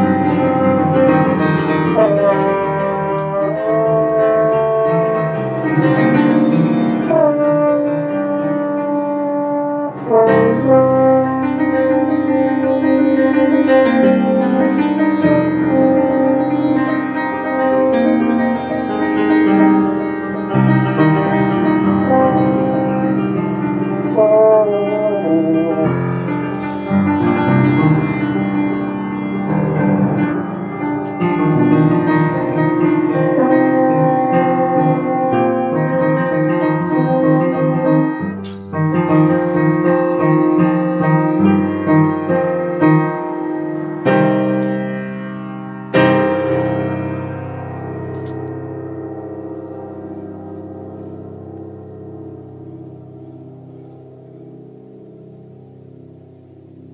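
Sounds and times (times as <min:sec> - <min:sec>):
french horn: 0:00.0 - 0:54.0
piano: 0:00.0 - 0:56.9.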